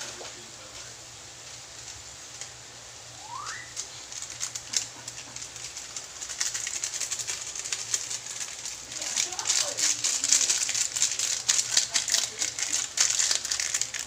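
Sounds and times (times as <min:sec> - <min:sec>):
chicken sizzling in a wok: 0:00.0 - 0:14.0
short rising chirp: 0:03.2 - 0:03.8.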